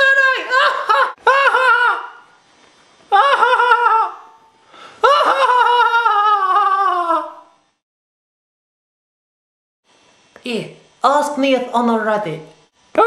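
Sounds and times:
high-pitched character laughing: 0.4 - 2.3, 3.1 - 4.4, 5.0 - 7.5.

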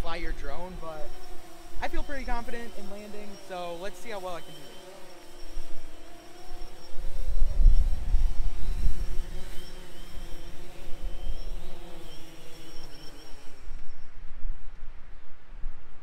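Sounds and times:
drone propellers buzzing: 0.0 - 14.3
wind rumbling on microphone: 6.6 - 11.7, 13.4 - 16.0.

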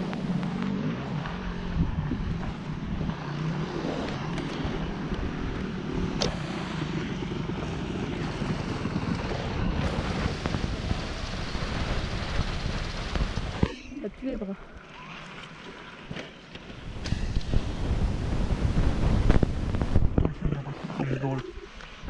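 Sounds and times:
dirt bike engine running: 0.0 - 14.4, 16.4 - 20.4
wind on microphone: 1.6 - 3.2, 8.5 - 13.8, 16.7 - 22.0.

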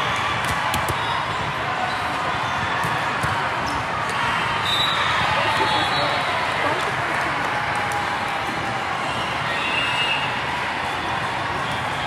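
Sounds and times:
volleyball play: 0.0 - 9.5
crowd chatter: 0.0 - 12.0.

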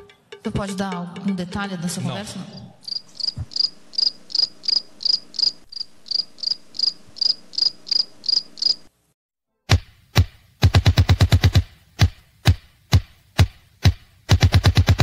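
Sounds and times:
cricket chirping: 2.8 - 8.9.

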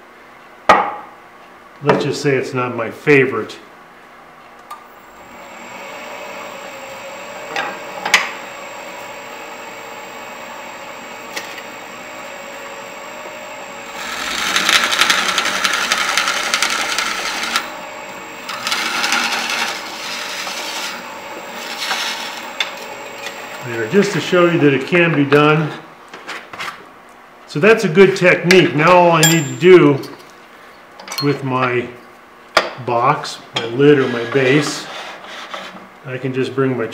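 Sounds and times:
wood lathe humming: 5.1 - 24.9
drill bit rasping into wood: 14.0 - 17.7, 18.4 - 21.0, 21.6 - 22.4.

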